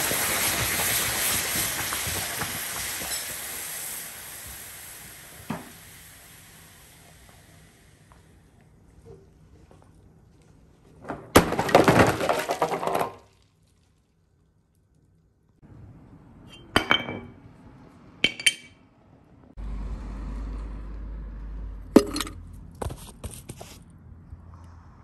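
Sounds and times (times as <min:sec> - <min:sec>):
hot metal quenched hissing: 0:00.0 - 0:07.8.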